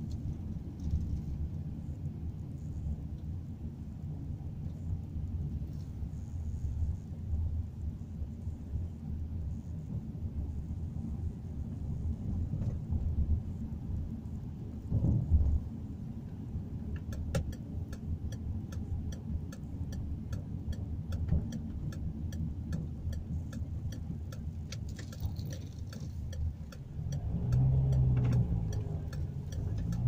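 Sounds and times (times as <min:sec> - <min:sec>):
car engine and road rumble: 0:00.0 - 0:30.0
turn signal ticking: 0:16.8 - 0:30.0.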